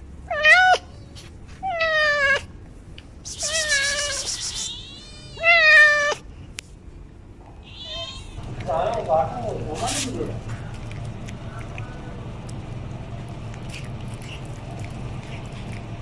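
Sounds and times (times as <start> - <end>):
cat meowing loudly: 0.3 - 0.9, 3.4 - 6.2, 7.6 - 8.4.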